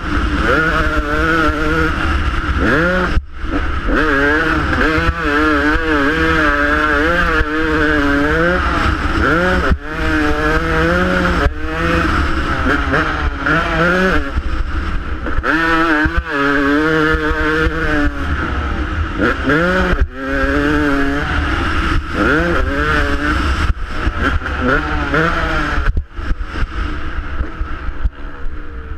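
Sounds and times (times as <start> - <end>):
dirt bike engine revving: 0.0 - 28.9.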